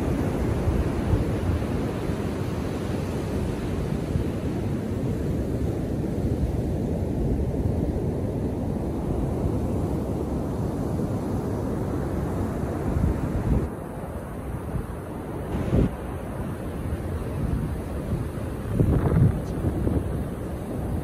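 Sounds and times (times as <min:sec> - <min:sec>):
wind buffeting microphone: 0:16.7 - 0:21.0.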